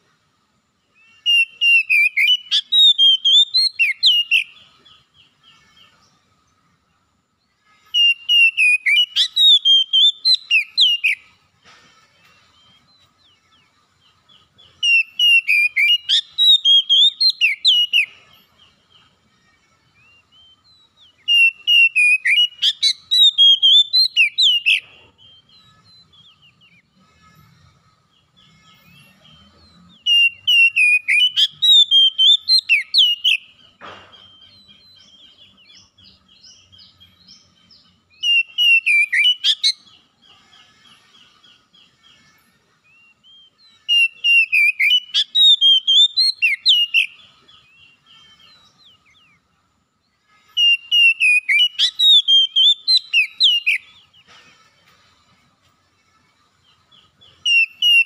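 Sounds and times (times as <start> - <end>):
bird singing whistled notes: 0.9 - 6.6, 7.2 - 11.4, 12.2 - 55.2, 56.5 - 58.0
bird twittering: 12.5 - 19.1, 19.9 - 40.0, 42.9 - 49.6, 50.5 - 54.4.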